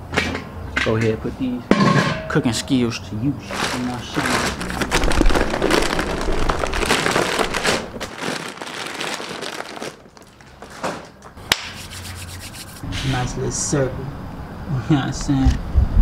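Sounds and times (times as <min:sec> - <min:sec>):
paper bag rustling: 0:03.4 - 0:11.3.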